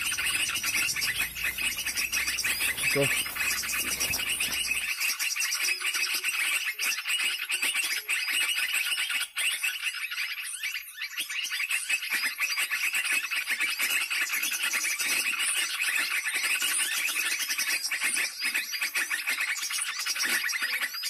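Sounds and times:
bird chirping from speaker: 0.0 - 5.0.

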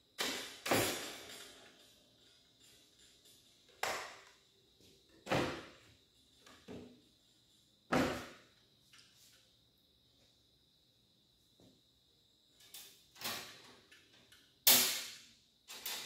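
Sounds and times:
power tools set down on steel table: 0.2 - 1.6, 7.9 - 8.4.

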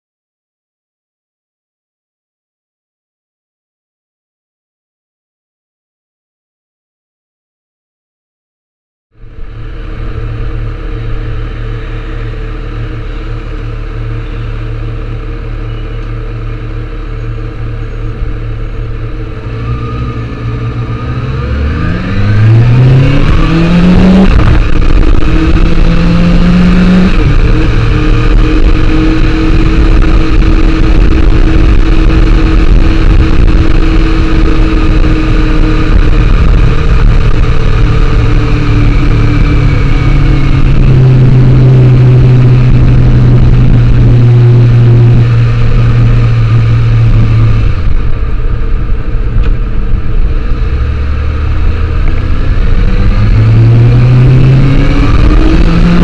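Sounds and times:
motorcycle engine: 9.1 - 56.0
wind rush on microphone: 18.2 - 56.0.

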